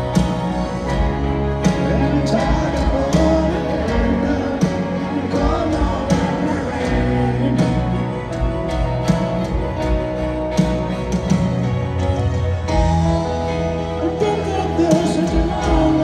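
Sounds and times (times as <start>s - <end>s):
rock band playing a ballad: 0.0s - 16.0s
man singing: 1.6s - 8.4s, 13.9s - 16.0s.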